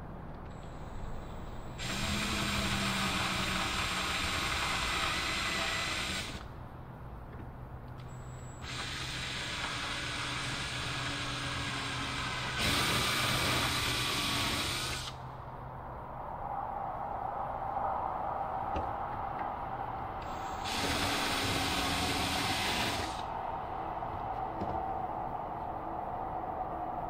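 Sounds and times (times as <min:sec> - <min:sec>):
cordless drill drilling wood: 0:01.7 - 0:06.4, 0:08.6 - 0:15.2, 0:20.2 - 0:23.2.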